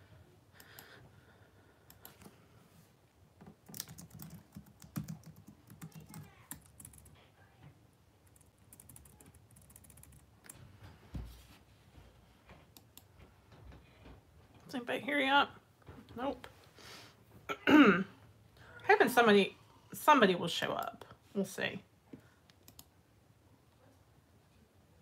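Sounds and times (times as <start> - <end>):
typing on computer keyboard: 3.4 - 7.2, 8.2 - 10.6, 22.5 - 22.9.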